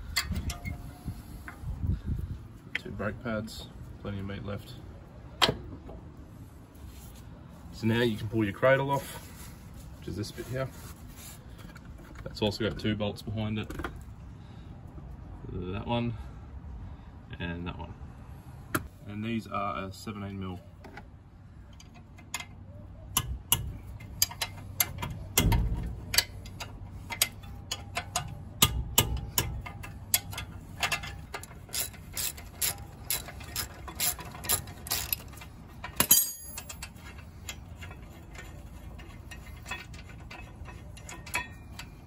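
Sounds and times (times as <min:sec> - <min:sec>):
ratchet wrench clicking: 0:23.1 - 0:42.0
metallic knock: 0:24.8 - 0:26.5.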